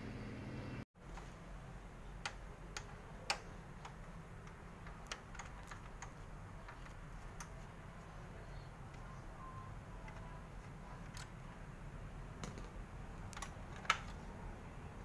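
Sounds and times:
screwdriver clicking: 0:02.2 - 0:07.6.

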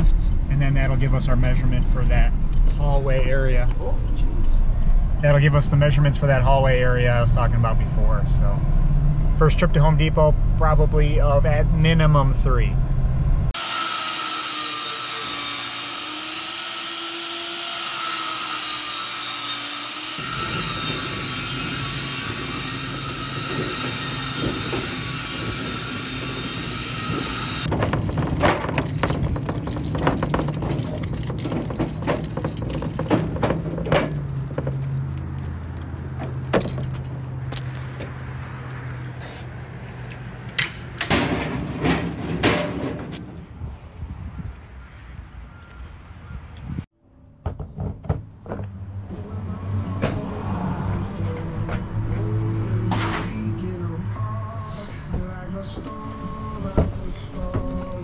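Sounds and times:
engine and road hum: 0:00.0 - 0:58.0
power saw cutting wood: 0:13.6 - 0:27.8
clattering: 0:27.7 - 0:34.9
knocks and rattles: 0:27.7 - 0:35.2, 0:36.1 - 0:37.2, 0:40.6 - 0:43.5.

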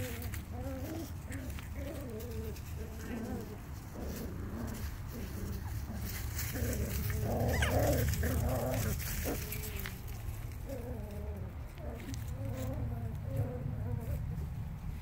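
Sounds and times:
puppies whimpering and yipping: 0:04.8 - 0:14.7.

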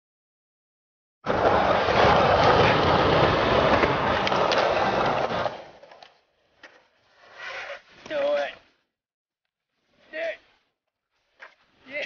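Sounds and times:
skateboard wheels rolling on concrete: 0:01.2 - 0:08.9.

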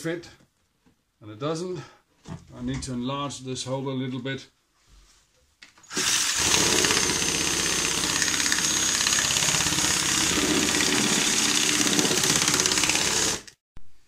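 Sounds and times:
cordless drill whine: 0:05.9 - 0:13.6.

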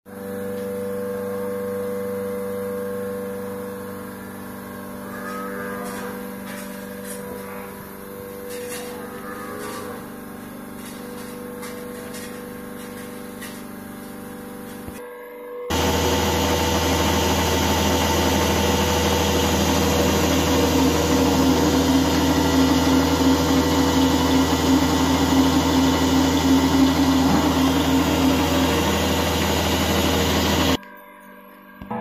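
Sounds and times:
motor humming: 0:15.7 - 0:30.8.

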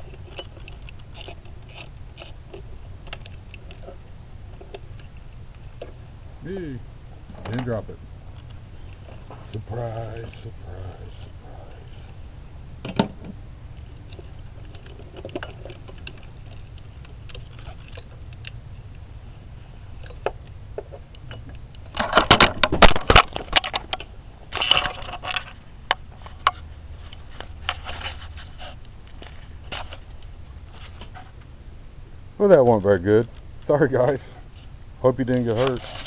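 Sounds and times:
rattling and scraping: 0:00.0 - 0:06.0, 0:07.2 - 0:12.2, 0:12.9 - 0:31.4, 0:34.0 - 0:36.0
camera falling and clattering: 0:21.9 - 0:25.6.

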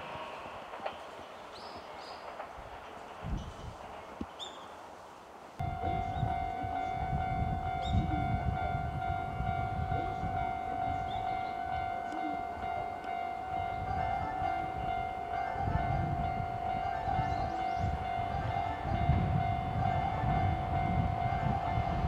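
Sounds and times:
train wheels rumbling on rails: 0:00.0 - 0:22.0
train high-pitched tone: 0:05.6 - 0:22.0.

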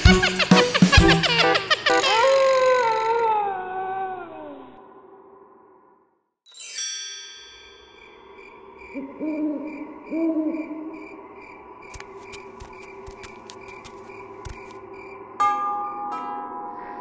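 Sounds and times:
shimmering chime: 0:06.5 - 0:09.0
owl hooting: 0:08.8 - 0:11.3.

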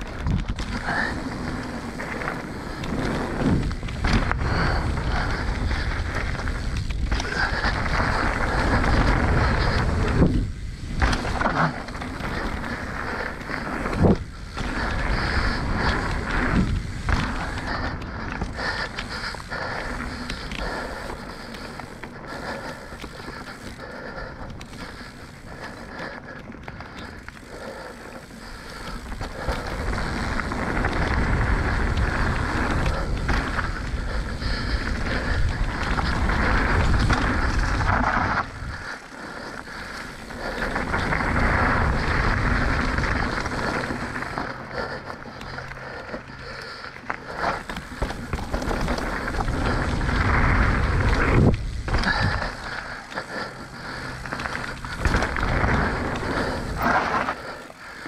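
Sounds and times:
knobby tyres rushing on dirt: 0:00.0 - 0:58.0
bike knocks and rattles: 0:53.6 - 0:57.7.

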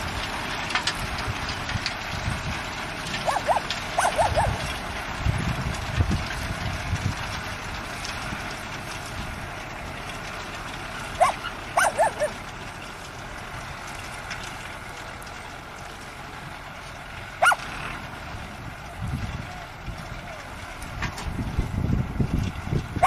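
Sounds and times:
tractor engine running: 0:00.0 - 0:23.0
dog yipping: 0:03.2 - 0:04.6, 0:11.2 - 0:12.4, 0:17.4 - 0:17.6.

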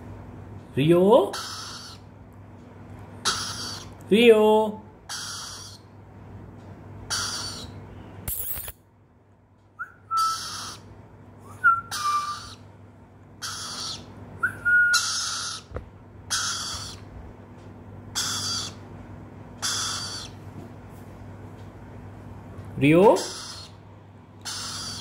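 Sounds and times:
bird chick harsh raspy calls: 0:01.3 - 0:02.1, 0:03.2 - 0:04.0, 0:05.0 - 0:05.9, 0:07.0 - 0:07.8, 0:10.1 - 0:10.9, 0:11.9 - 0:12.6, 0:13.4 - 0:14.2, 0:14.9 - 0:17.1, 0:18.1 - 0:18.9, 0:19.6 - 0:20.4, 0:23.1 - 0:23.8, 0:24.4 - 0:25.0.

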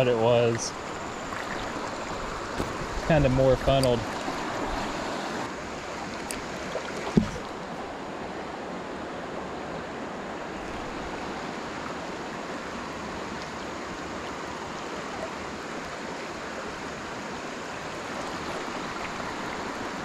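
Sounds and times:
river current rushing: 0:00.0 - 0:20.0.

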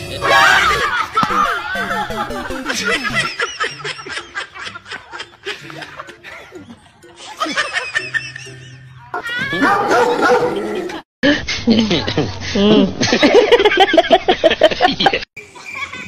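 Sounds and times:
background music: 0:00.0 - 0:10.9
people laughing: 0:00.6 - 0:16.0.

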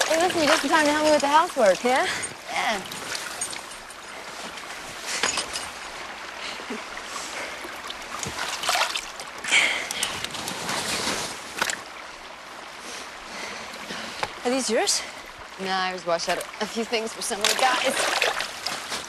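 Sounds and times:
clothes splashing in water: 0:00.0 - 0:05.7, 0:07.4 - 0:12.0, 0:16.3 - 0:19.0
stream water running: 0:00.0 - 0:19.0.

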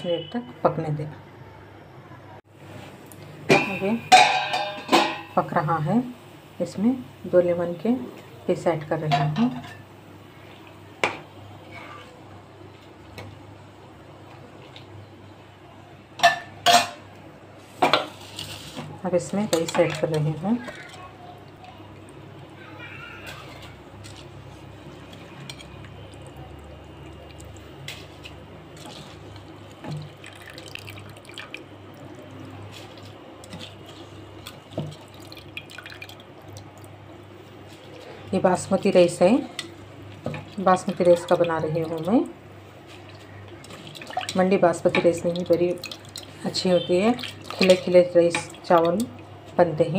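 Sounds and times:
metal cookware clink: 0:03.5 - 0:05.4, 0:09.0 - 0:09.9
water simmering in a pan: 0:19.6 - 0:49.6.

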